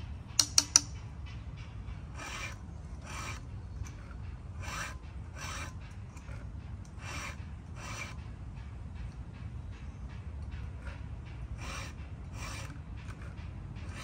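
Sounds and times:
low steady rumble: 0:00.0 - 0:14.0
hand file rasping: 0:02.0 - 0:08.4, 0:10.6 - 0:14.0.

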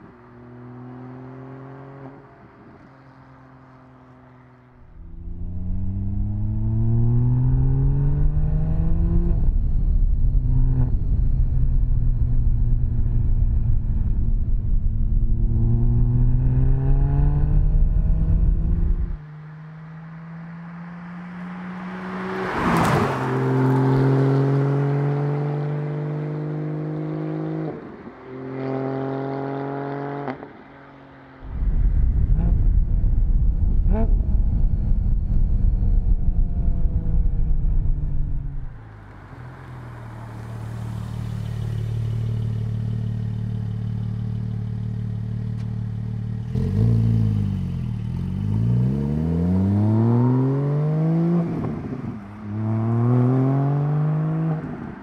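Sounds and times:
rush of noise: 0:31.4 - 0:38.8.

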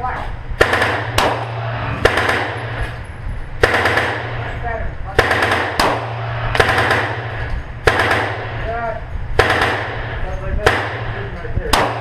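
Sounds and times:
steady low hum: 0:00.0 - 0:12.0
handgun shots echoing: 0:00.6 - 0:03.0, 0:03.6 - 0:04.4, 0:05.2 - 0:08.6, 0:09.4 - 0:12.0.

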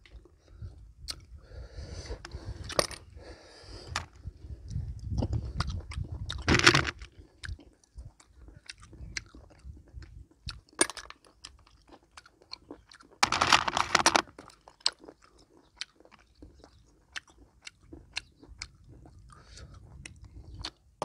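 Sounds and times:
close-up chewing: 0:03.8 - 0:21.0
snail shells clicking: 0:06.3 - 0:07.1, 0:10.8 - 0:15.2.

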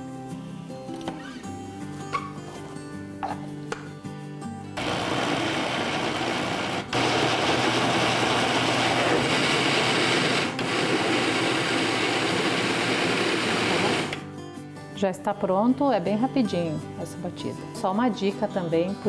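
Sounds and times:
countertop blender running: 0:04.8 - 0:14.2.

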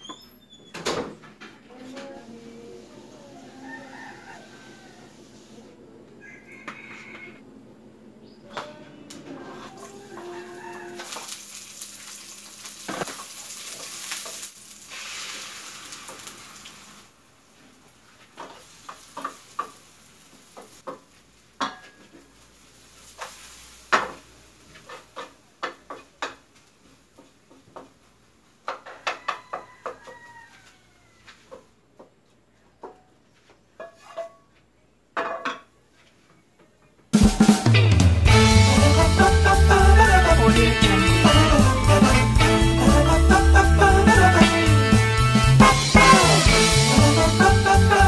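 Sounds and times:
eggs sizzling in a frying pan: 0:10.1 - 0:17.2, 0:17.9 - 0:26.4
wooden spatula scraping a pan: 0:23.0 - 0:25.4.

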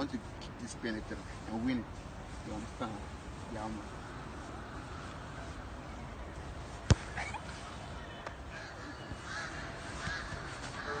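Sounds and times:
steady outdoor background: 0:00.0 - 0:11.0
football kicked on grass: 0:06.8 - 0:07.2.

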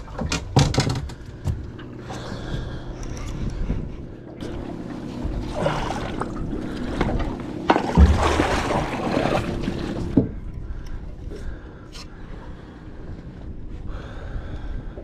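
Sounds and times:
water splashing against boat: 0:00.0 - 0:15.0
knocks on the hull: 0:00.2 - 0:01.6.

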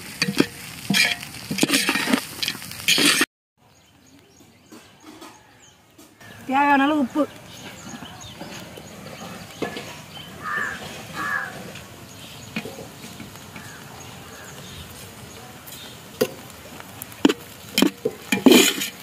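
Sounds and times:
ladle scraping a steel pot: 0:00.0 - 0:03.3, 0:07.6 - 0:11.9, 0:17.2 - 0:19.0
animal calls: 0:10.2 - 0:11.8.

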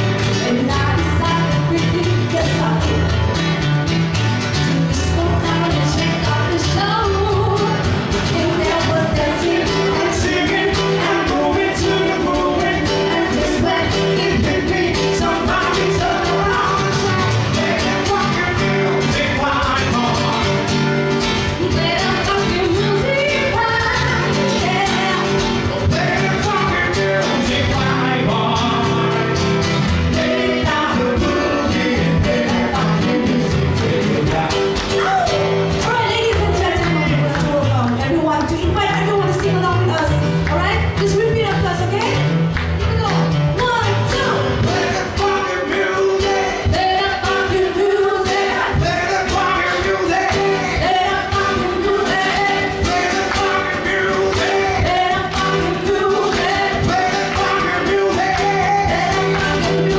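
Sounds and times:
strummed acoustic guitars: 0:00.0 - 0:59.9
woman singing into a microphone: 0:00.3 - 0:03.2, 0:04.7 - 0:18.2, 0:21.5 - 0:26.8, 0:35.8 - 0:42.2, 0:42.8 - 0:48.9, 0:49.8 - 0:53.2, 0:54.4 - 0:57.0.

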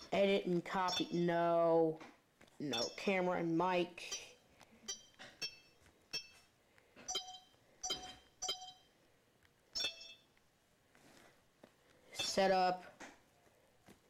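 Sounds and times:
short high chiming beeps: 0:00.9 - 0:01.2, 0:07.1 - 0:08.9, 0:09.8 - 0:10.3.

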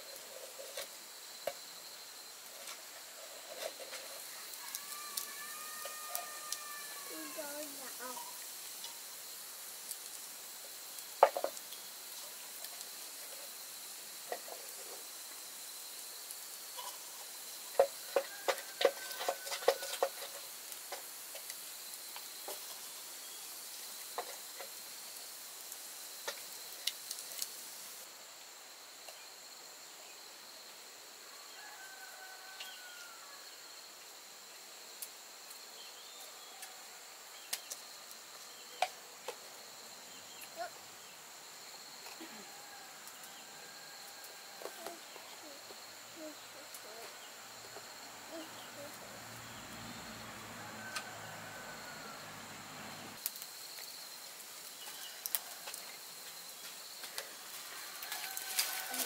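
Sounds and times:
insects droning: 0:00.0 - 0:59.0
chicken calls: 0:04.3 - 0:08.3.

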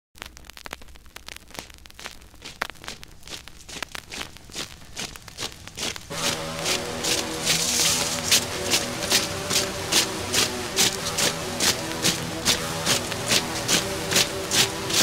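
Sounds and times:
vinyl crackles and pops: 0:00.1 - 0:15.0
low steady hum: 0:00.8 - 0:15.0
song music: 0:06.1 - 0:15.0.

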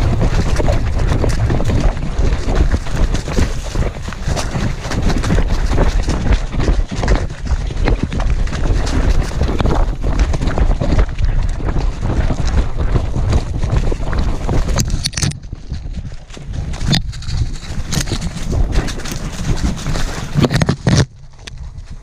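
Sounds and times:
wind buffeting microphone: 0:00.0 - 0:22.0
brush scraping harness: 0:16.2 - 0:21.6.

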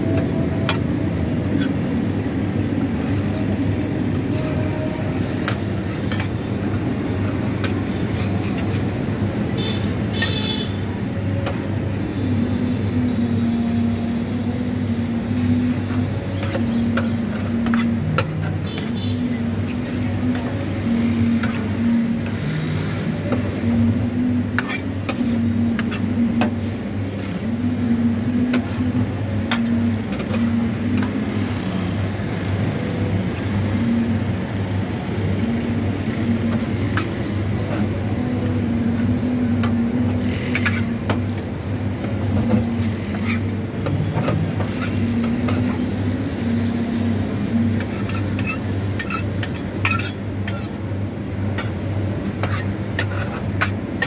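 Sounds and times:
metal spatulas scraping cold plate: 0:05.3 - 0:08.9, 0:15.7 - 0:20.5, 0:22.9 - 0:26.6, 0:28.4 - 0:31.2, 0:36.4 - 0:38.6, 0:39.6 - 0:41.4, 0:42.3 - 0:46.5, 0:47.5 - 0:50.8, 0:51.5 - 0:54.0.

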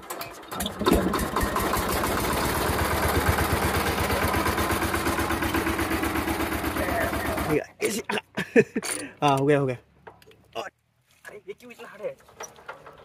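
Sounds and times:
diesel engine starting and running: 0:00.0 - 0:07.6.

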